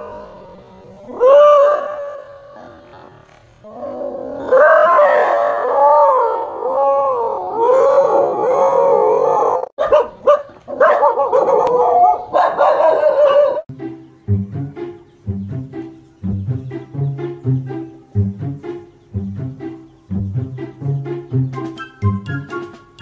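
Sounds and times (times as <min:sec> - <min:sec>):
music with plucked notes: 0:13.7 - 0:23.0.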